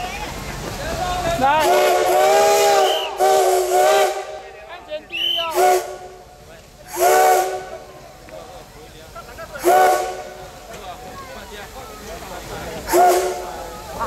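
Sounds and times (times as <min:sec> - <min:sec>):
hissing steam: 0:00.0 - 0:14.0
steam whistle blasts: 0:01.6 - 0:04.4, 0:05.2 - 0:06.2, 0:06.9 - 0:07.8, 0:12.9 - 0:13.5.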